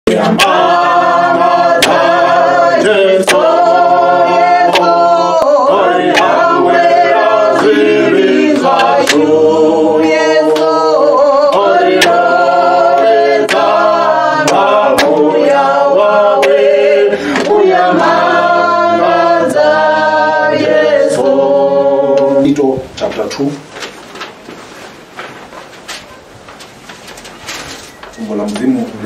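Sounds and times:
choir singing: 0:00.1 - 0:22.6.

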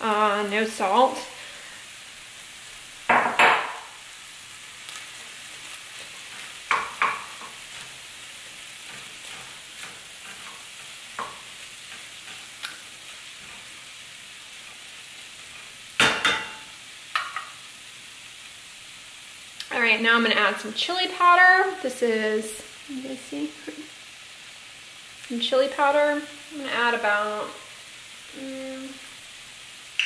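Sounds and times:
food sizzling in a skillet: 0:00.0 - 0:30.0
spatula scraping a pan: 0:05.1 - 0:13.9.

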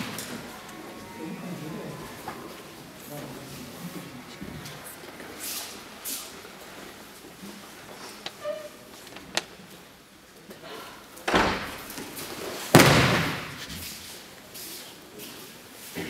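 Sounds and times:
people moving on mats: 0:00.0 - 0:10.6
body slamming onto mats: 0:12.7 - 0:13.6.

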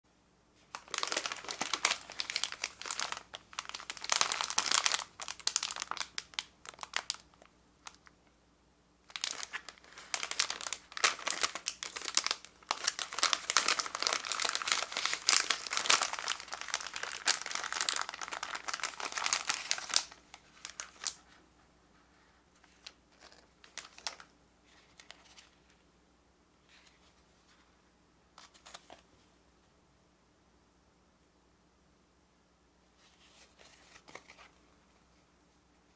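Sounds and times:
plastic wrapper crinkling: 0:00.6 - 0:08.1, 0:09.1 - 0:21.4, 0:22.6 - 0:25.6.

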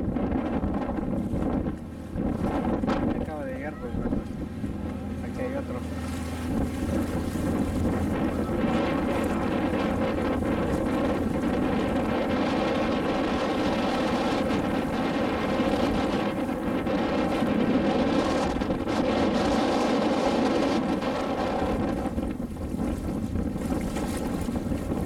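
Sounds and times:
boat engine droning: 0:00.0 - 0:25.0.

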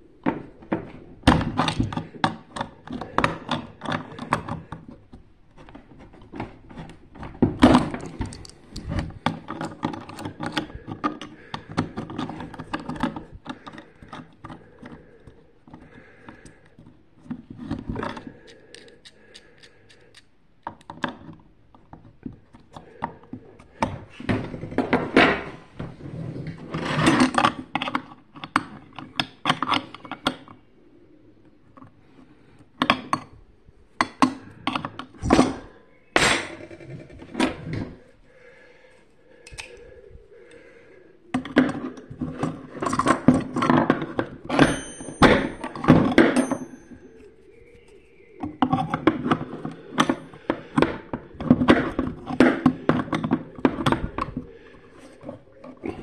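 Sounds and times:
metal tools clinking and knocking: 0:42.3 - 0:47.2.

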